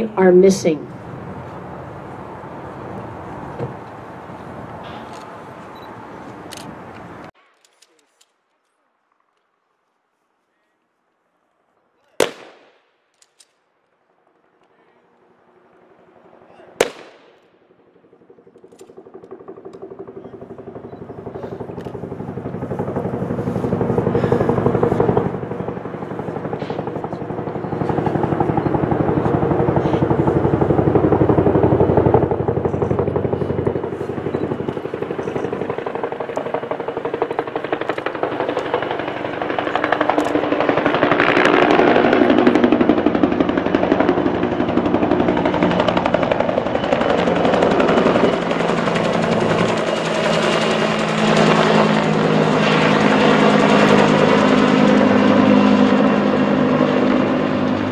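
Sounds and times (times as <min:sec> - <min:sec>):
rifle volley crack: 0:12.0 - 0:13.0, 0:16.5 - 0:17.5
helicopter rotor beating: 0:17.6 - 0:57.9.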